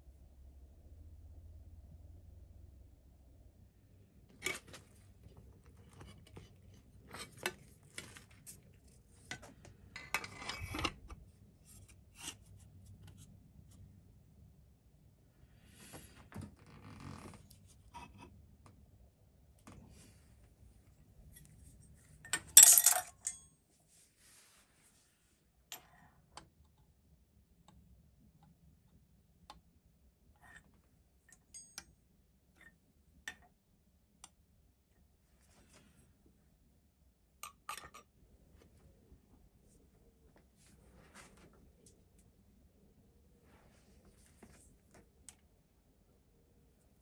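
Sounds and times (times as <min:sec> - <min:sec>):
light clicks and taps of tools: 0:30.4 - 0:33.6, 0:34.2 - 0:35.0.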